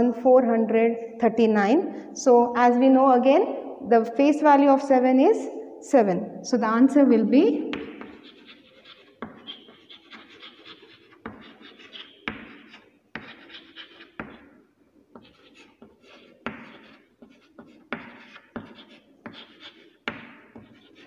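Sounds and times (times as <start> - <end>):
chalk tapping and scratching on board: 7.7 - 21.0.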